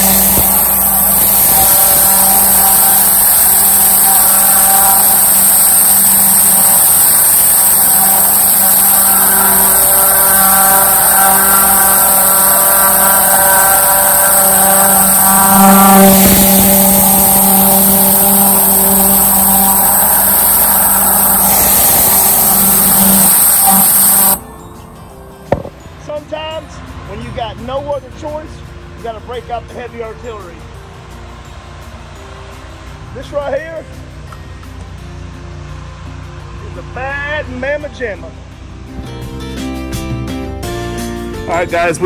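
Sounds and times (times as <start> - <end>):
pressure washer spraying concrete: 0.0 - 24.4.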